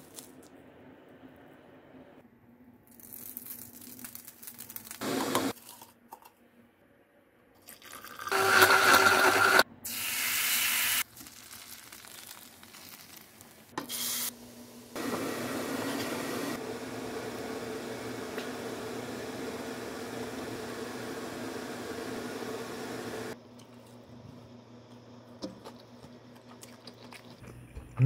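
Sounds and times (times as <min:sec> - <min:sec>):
water pouring into a jar: 0:07.6 - 0:08.4.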